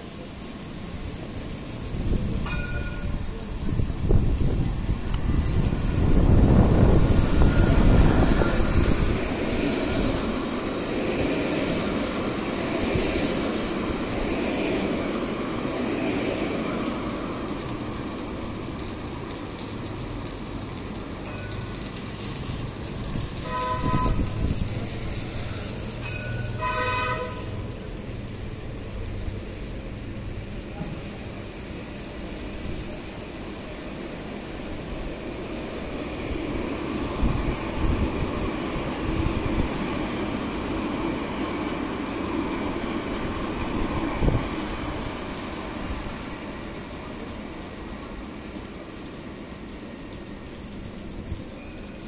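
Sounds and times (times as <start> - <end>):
rain hissing on paving: 0.0 - 52.0
tram rumbling past: 0.0 - 52.0
short horn toots: 23.4 - 24.4, 26.6 - 27.6.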